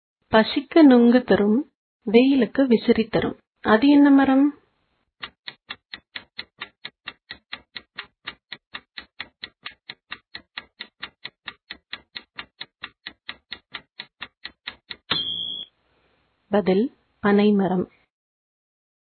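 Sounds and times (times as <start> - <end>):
clock ticking: 5.2 - 15.6.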